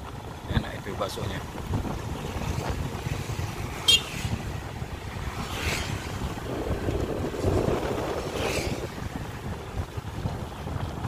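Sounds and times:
motorcycle low rumble: 0:00.0 - 0:11.0
wind buffeting microphone: 0:00.0 - 0:11.0.

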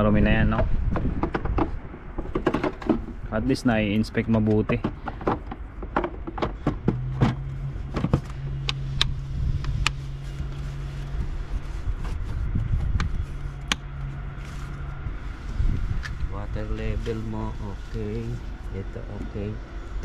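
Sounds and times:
steady low hum: 0:00.0 - 0:20.0
sharp clicks and knocks: 0:00.5 - 0:03.2, 0:04.2 - 0:10.0.

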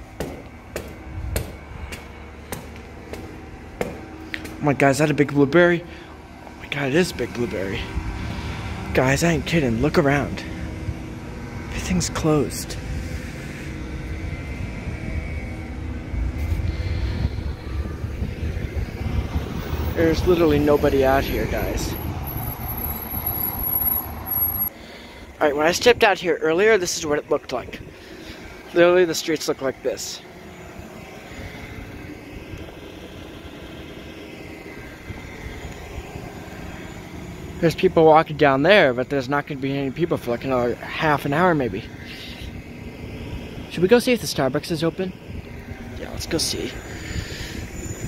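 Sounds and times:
distant vehicle passing: 0:00.0 - 0:25.4
low street rumble: 0:00.0 - 0:48.0
wind buffeting microphone: 0:13.9 - 0:24.2.

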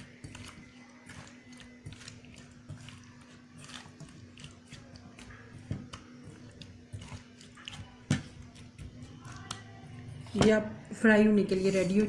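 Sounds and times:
hand mixing batter squelches: 0:00.0 - 0:12.0.

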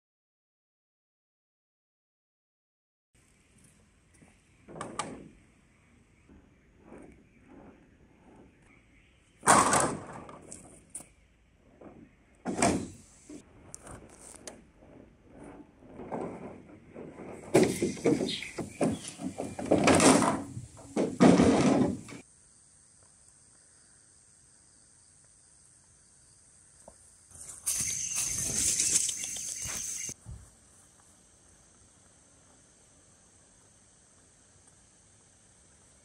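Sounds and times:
bamboo poles clattering: 0:15.5 - 0:22.2, 0:27.3 - 0:30.2
insects buzzing: 0:17.4 - 0:36.0.

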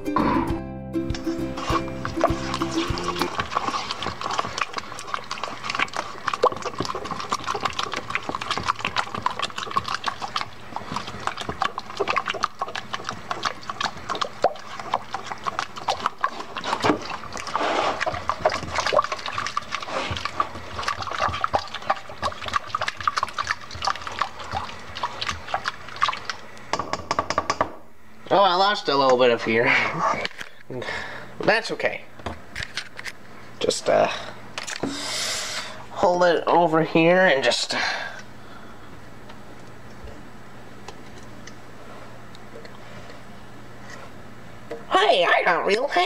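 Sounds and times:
spatula stirring wet dough: 0:01.2 - 0:26.5.

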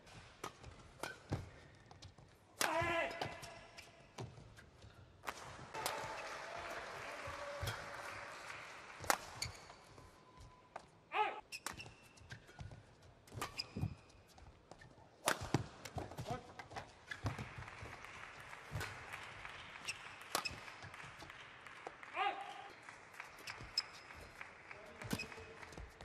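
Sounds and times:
rackets striking shuttlecock: 0:00.4 - 0:01.6, 0:02.6 - 0:03.6, 0:11.5 - 0:14.0, 0:14.8 - 0:17.4
shoes squeaking on court: 0:09.4 - 0:17.4, 0:19.8 - 0:20.9, 0:23.4 - 0:24.3, 0:25.0 - 0:25.8.

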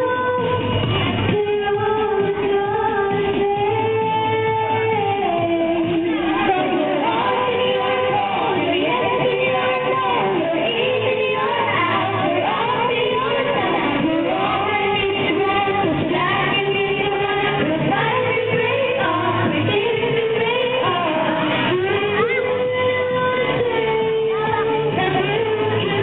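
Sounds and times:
girls singing pop song: 0:00.0 - 0:26.0
pop backing track: 0:00.0 - 0:26.0.

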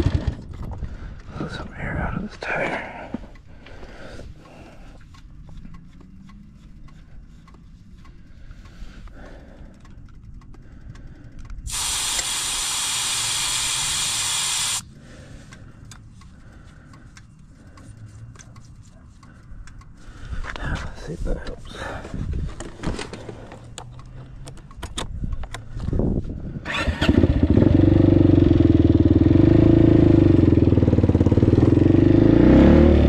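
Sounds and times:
faint clicks and handling: 0:02.5 - 0:11.7, 0:15.4 - 0:26.1
pressurized gas hissing: 0:11.7 - 0:14.8.

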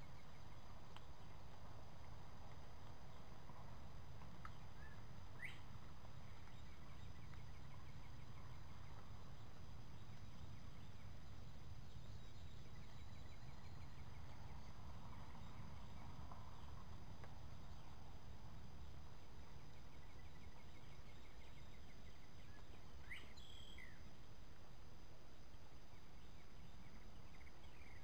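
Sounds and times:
faint bird chirps: 0:04.4 - 0:16.8, 0:17.4 - 0:24.3, 0:25.4 - 0:28.0.

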